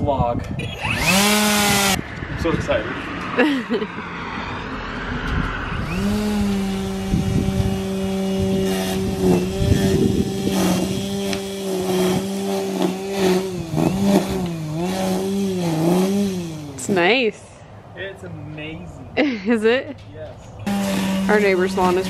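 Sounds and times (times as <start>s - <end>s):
string trimmer motor whining: 0.6s - 2.0s, 5.7s - 17.1s, 20.6s - 22.0s
trimmer line slapping grass: 5.8s - 17.0s.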